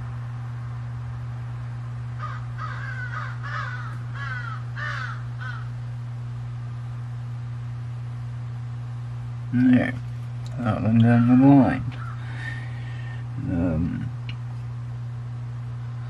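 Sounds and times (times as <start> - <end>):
electrical hum: 0.0 - 16.0
short animal calls: 2.2 - 5.7.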